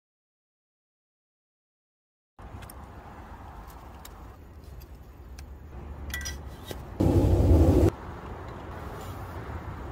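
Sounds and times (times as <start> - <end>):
loud rushing noise: 7.0 - 8.0.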